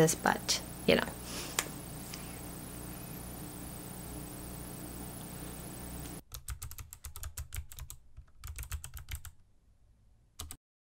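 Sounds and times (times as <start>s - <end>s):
background hiss: 0.0s - 6.2s
computer keyboard typing: 6.3s - 9.3s, 10.4s - 10.6s.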